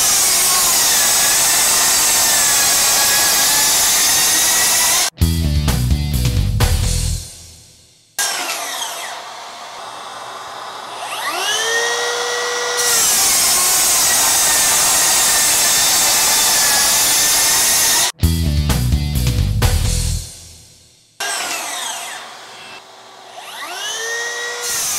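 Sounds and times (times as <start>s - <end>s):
circular saw whine: 0.0s - 5.1s, 8.2s - 18.1s, 21.2s - 24.9s
saw cutting through wood sheets: 0.0s - 5.1s, 8.2s - 18.2s, 21.2s - 24.9s.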